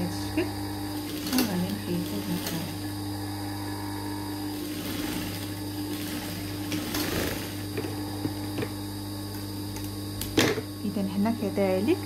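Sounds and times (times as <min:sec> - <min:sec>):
sewing machine motor humming: 0:00.0 - 0:12.0
sewing machine stitching: 0:04.6 - 0:07.6.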